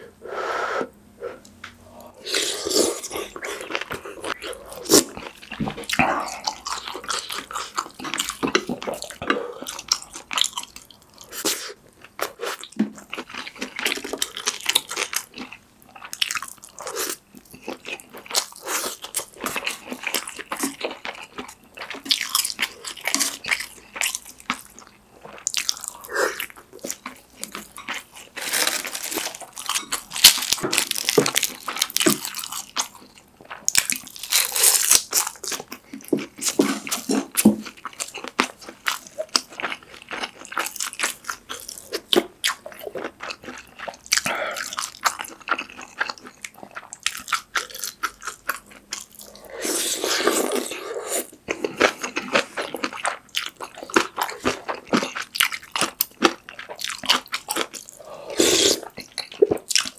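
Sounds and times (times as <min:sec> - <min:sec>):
person chewing food: 0:01.4 - 0:59.9
crisp crunching: 0:28.3 - 0:32.6.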